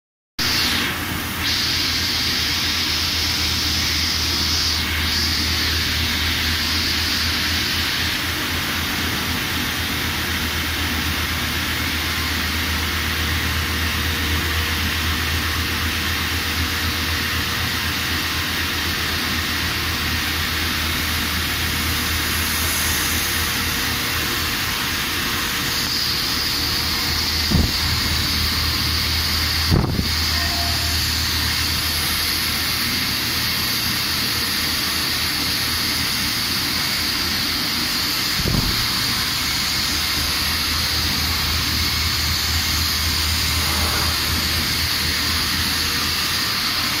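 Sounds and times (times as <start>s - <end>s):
lathe machine running with hiss: 0.4s - 47.0s
short knock: 27.5s - 27.9s.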